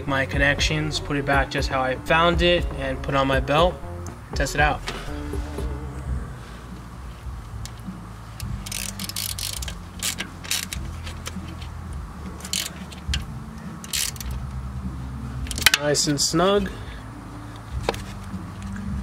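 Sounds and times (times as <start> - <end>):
ratchet wrench clicking: 7.6 - 11.7, 12.4 - 14.5.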